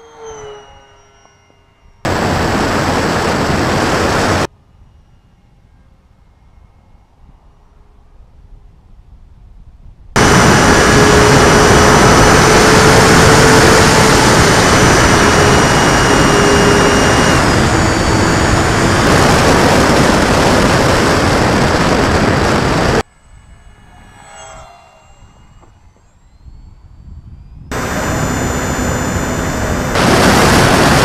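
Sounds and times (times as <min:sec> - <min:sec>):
electric motor and propeller whine: 0:00.0 - 0:31.0
wind rush: 0:02.0 - 0:04.5, 0:09.6 - 0:31.0.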